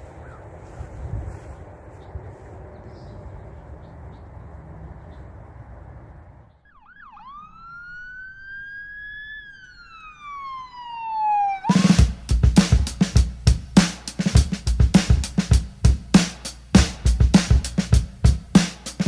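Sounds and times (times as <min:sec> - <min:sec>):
faint outdoor background noise: 0:00.0 - 0:19.0
siren yelp and wail: 0:06.6 - 0:12.1
drum-heavy intro music: 0:11.7 - 0:19.0.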